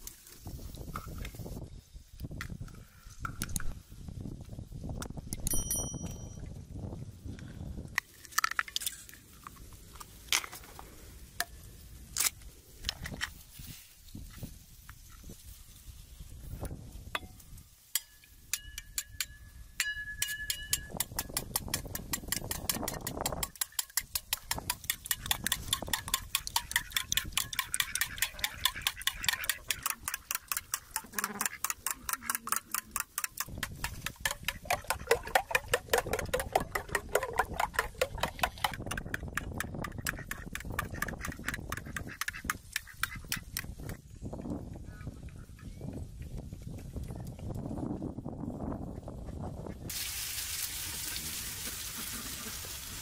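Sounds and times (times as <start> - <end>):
spoon clicking against bowl: 18.0 - 43.7.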